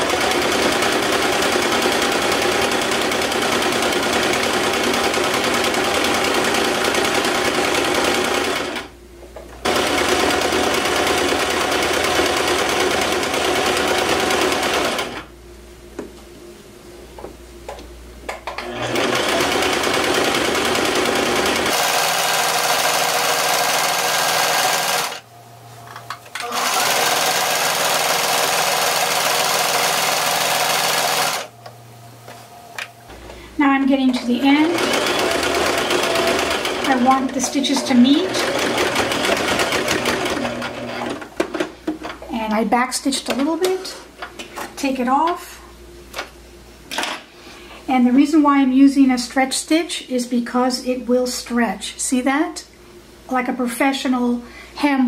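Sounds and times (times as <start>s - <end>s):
sewing machine running: 0.0s - 8.9s, 9.6s - 15.3s, 18.6s - 25.2s, 26.3s - 31.5s, 34.1s - 41.2s.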